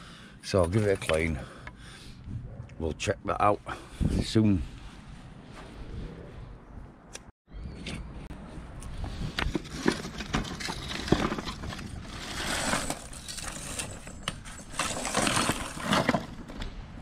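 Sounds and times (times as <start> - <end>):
footsteps: 4.7 - 5.9
scrap metal clinking and scraping: 9.5 - 16.6.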